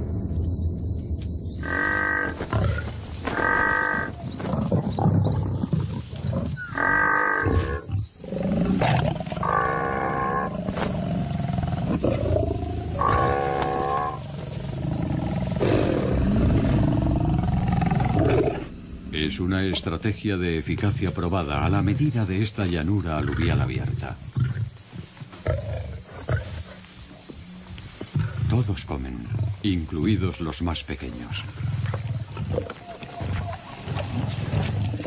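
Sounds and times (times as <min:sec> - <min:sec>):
lions growling: 0:01.6 - 0:20.2, 0:20.8 - 0:27.3, 0:31.1 - 0:35.0
wildebeest bellowing: 0:09.4 - 0:15.9.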